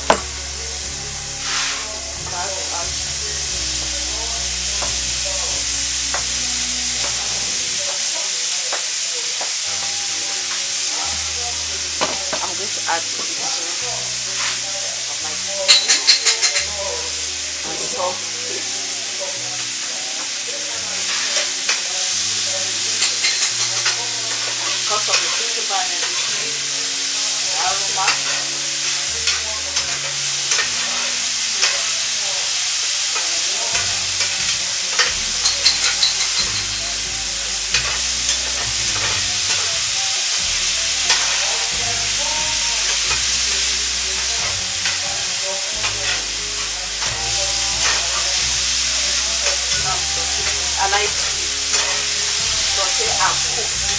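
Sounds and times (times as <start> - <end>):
vegetables sizzling in a frying pan: 0.0 - 53.9
utensil scraping and tapping pan: 33.2 - 36.8.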